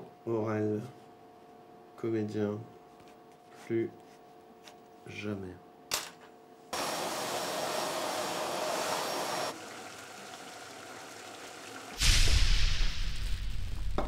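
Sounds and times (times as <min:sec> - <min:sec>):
vacuum cleaner whining: 0:06.8 - 0:11.9
water boiling in a pot: 0:06.8 - 0:14.0.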